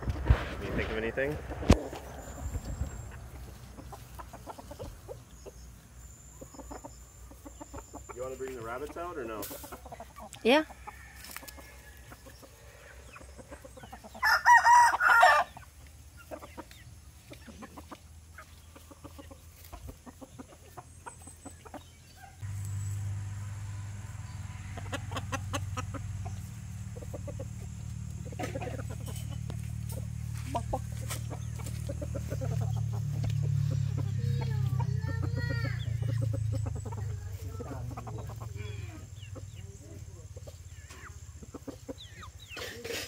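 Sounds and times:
faint chicken clucks: 0.1s - 23.0s, 23.7s - 43.0s
rooster crowing: 10.4s - 13.0s, 14.2s - 15.6s, 23.3s - 25.9s
steady low hum: 22.4s - 40.2s.

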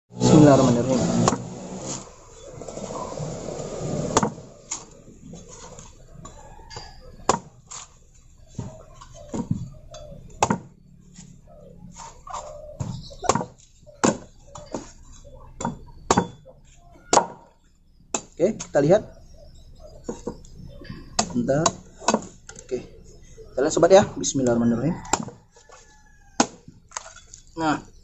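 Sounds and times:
blade chopping coconut husk: 0.2s - 4.9s, 7.2s - 8.0s, 10.4s - 10.7s, 13.2s - 15.0s, 17.1s - 17.5s, 18.1s - 18.8s, 21.2s - 22.4s, 24.5s - 25.4s, 26.3s - 27.2s.

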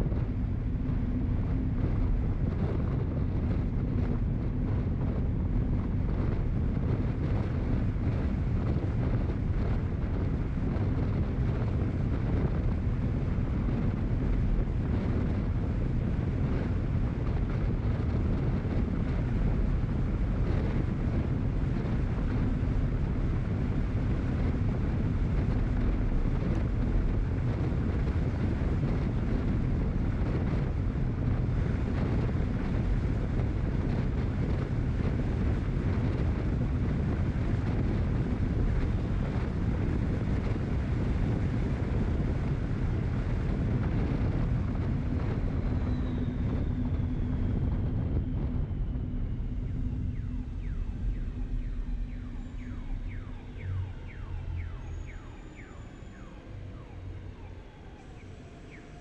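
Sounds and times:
wind buffeting microphone: 0.0s - 59.0s
road noise: 46.5s - 59.0s.

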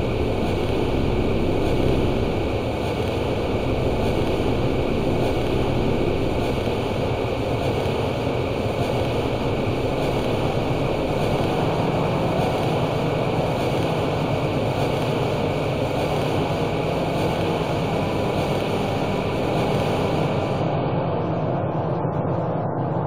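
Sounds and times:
industrial rumbling drone: 0.0s - 23.0s.

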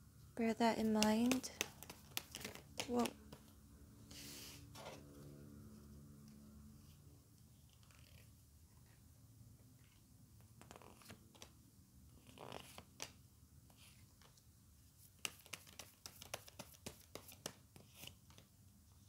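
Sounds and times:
cards tapping on marble: 0.7s - 3.6s, 15.2s - 18.4s
cards swishing: 0.8s - 3.4s.

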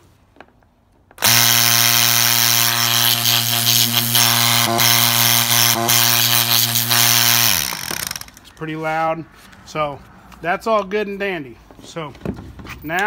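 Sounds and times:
air pump humming and hissing: 1.2s - 8.3s.

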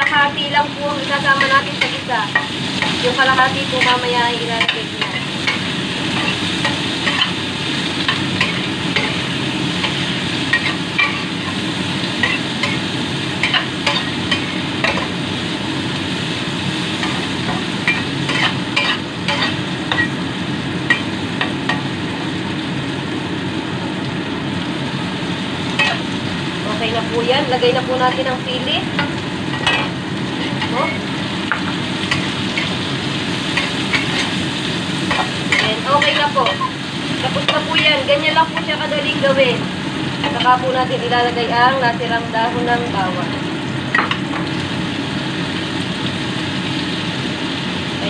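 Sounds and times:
meat sizzling in hot oil: 0.0s - 48.0s
spatula scraping a pan: 17.0s - 20.1s, 33.5s - 36.7s.

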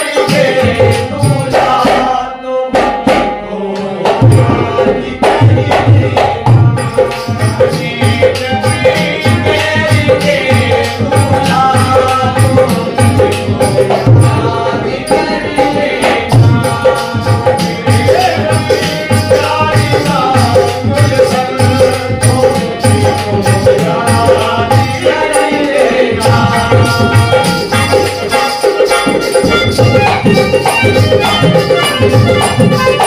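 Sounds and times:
harmonium: 0.0s - 33.0s
men singing: 0.0s - 33.0s
hand drum beating: 0.2s - 33.0s.

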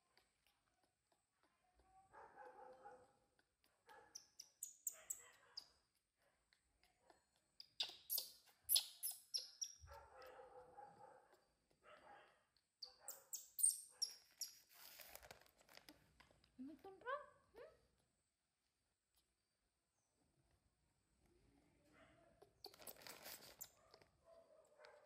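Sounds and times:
baby monkey squealing: 7.6s - 9.8s, 13.0s - 14.6s, 22.6s - 23.8s.

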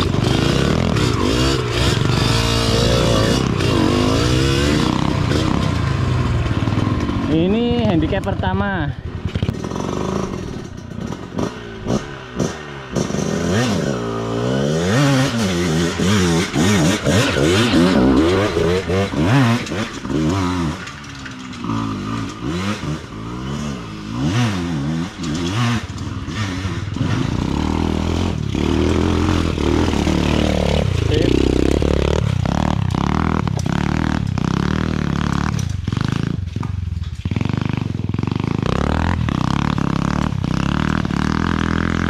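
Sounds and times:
motorbike engine revving: 0.0s - 42.0s
clatter and knocks: 15.6s - 23.7s, 24.9s - 42.0s.

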